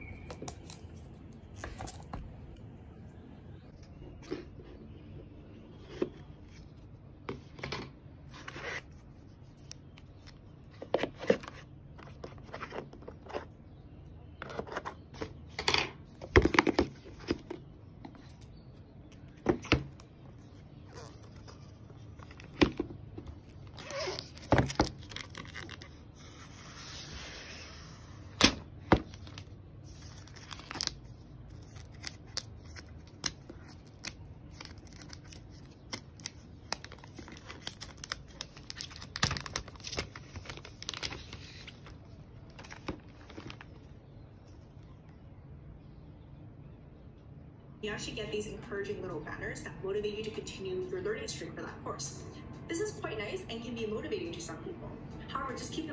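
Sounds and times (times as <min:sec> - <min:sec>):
packaging rustling: 0:20.5 - 0:27.2, 0:28.9 - 0:43.9
packaging tearing: 0:23.4 - 0:27.2, 0:29.0 - 0:42.0.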